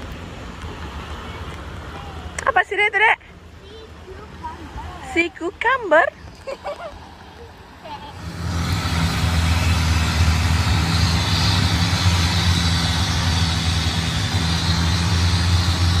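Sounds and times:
water and wind rushing along hull: 0:00.0 - 0:16.0
boat engine running: 0:07.5 - 0:16.0.

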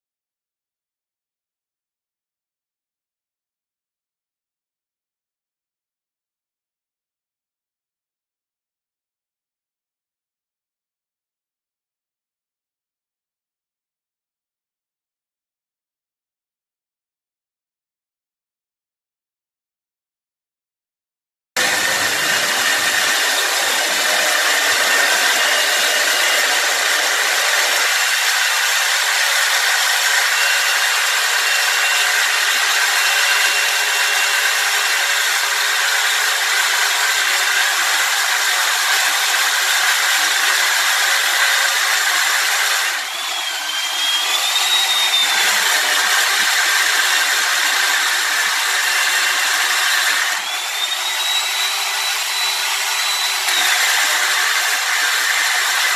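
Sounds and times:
power tool grinding concrete: 0:21.6 - 0:55.9.

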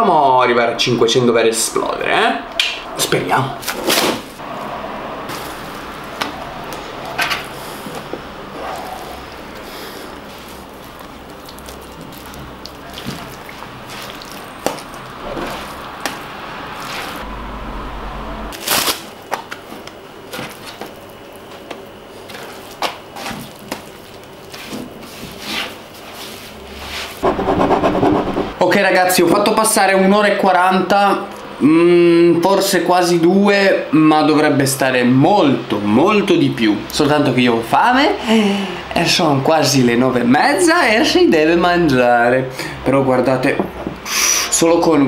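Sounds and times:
wet dough squishing and slapping: 0:10.2 - 0:17.2, 0:19.2 - 0:26.4.

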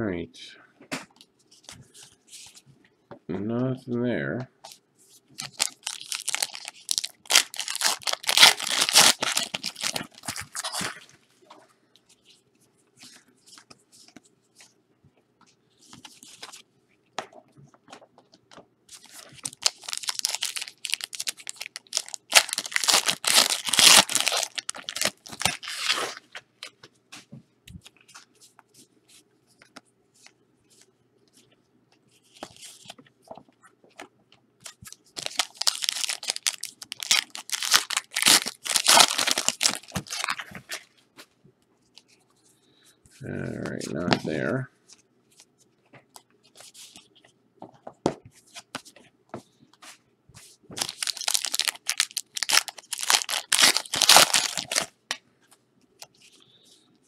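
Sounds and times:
plastic packaging tearing and crinkling: 0:05.4 - 0:11.1, 0:19.0 - 0:26.4, 0:34.8 - 0:40.9, 0:50.8 - 0:54.9.

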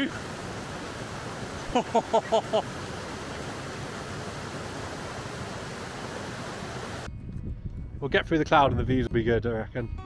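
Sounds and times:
stream rushing over rocks: 0:00.0 - 0:07.1.

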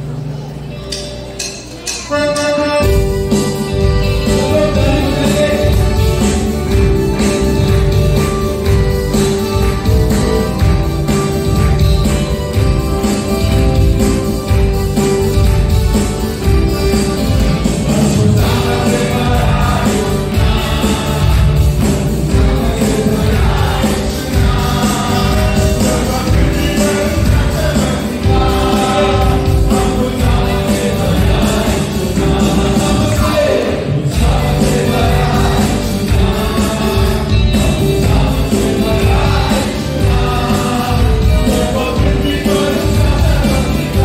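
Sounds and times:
held keyboard chord: 0:00.0 - 0:44.0
live worship band playing: 0:00.0 - 0:44.0
man singing into a microphone: 0:04.0 - 0:06.3, 0:22.4 - 0:44.0.

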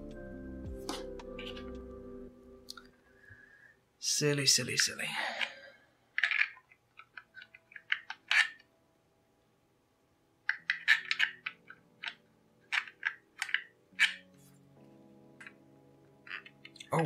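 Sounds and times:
plastic puzzle clicking: 0:06.1 - 0:08.7, 0:10.4 - 0:14.3, 0:16.2 - 0:16.9.

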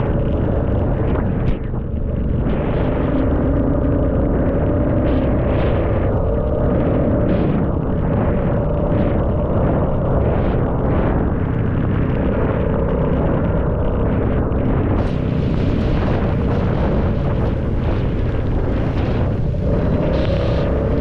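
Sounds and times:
wind buffeting microphone: 0:00.0 - 0:21.0
motorcycle engine running: 0:11.4 - 0:21.0.

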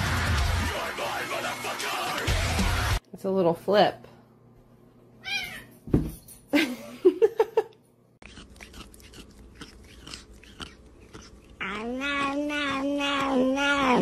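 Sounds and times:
thump: 0:05.9 - 0:06.2.

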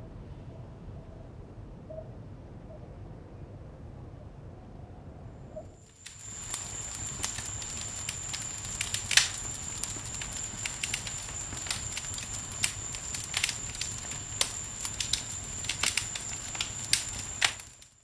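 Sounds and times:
campfire crackling and popping: 0:05.8 - 0:18.0.

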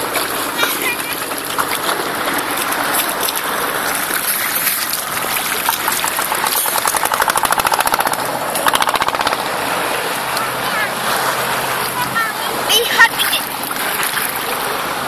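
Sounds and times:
sea water splashing and gurgling: 0:00.0 - 0:15.0
rapid fluttering pulse: 0:04.3 - 0:10.0.

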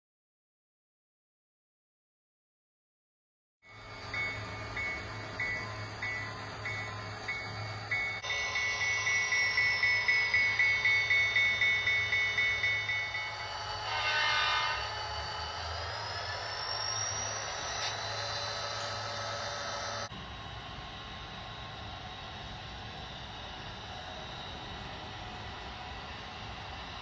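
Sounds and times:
thin whine: 0:03.6 - 0:27.0
locomotive bell ringing: 0:03.7 - 0:20.1
locomotive horn blast: 0:13.8 - 0:15.3.

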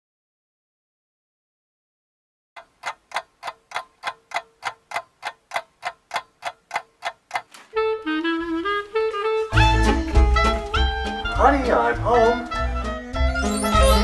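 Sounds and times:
clock ticking fast: 0:02.6 - 0:07.6
melodic music: 0:07.8 - 0:14.0.

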